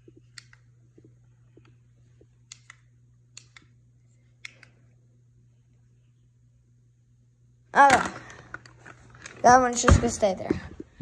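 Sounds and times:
faint low hum: 0.0 - 11.0
handheld clicker clicking: 2.4 - 3.7.

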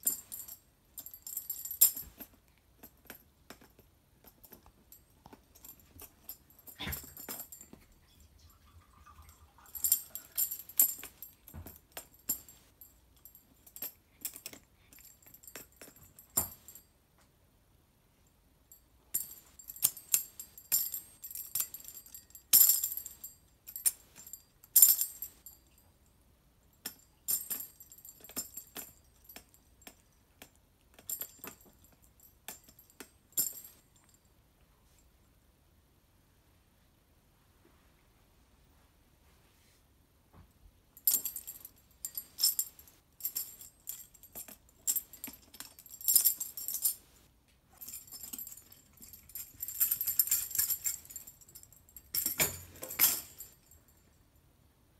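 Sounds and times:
tambourine jingles rattling: 47.8 - 54.0.

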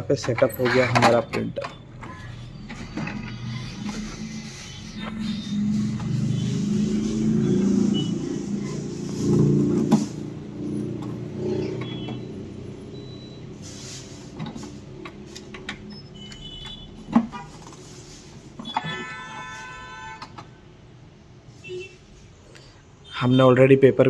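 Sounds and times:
printer motors whirring and clunking: 0.2 - 8.1, 8.9 - 17.3.

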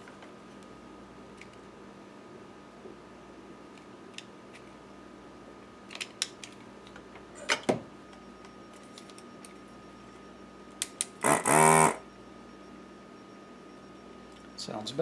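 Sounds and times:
vacuum pump buzzing whir: 9.9 - 15.0.

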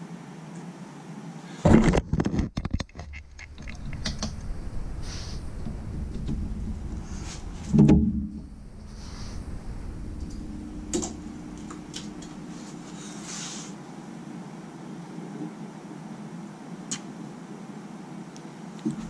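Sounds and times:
steady rustling: 1.7 - 14.0.

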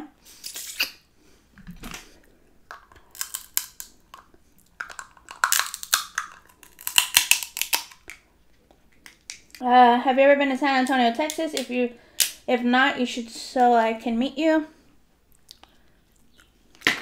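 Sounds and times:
shrimp shell crackling: 2.7 - 8.2.

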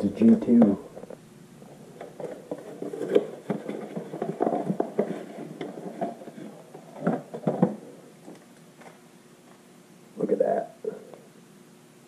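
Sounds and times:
paper packing rustling: 1.9 - 9.0.

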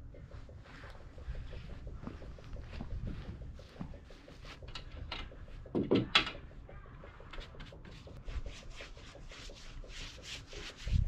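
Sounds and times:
paintbrush rubbing on wood: 7.3 - 11.0.

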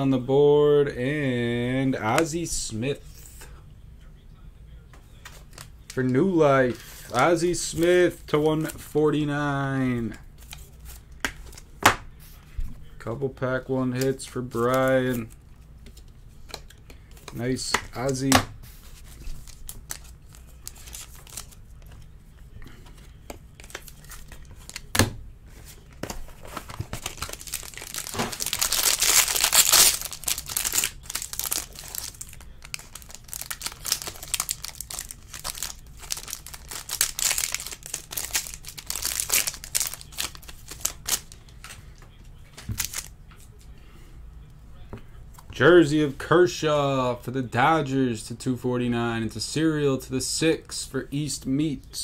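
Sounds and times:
foil wrappers tearing and crinkling: 26.4 - 41.4, 42.8 - 43.1.

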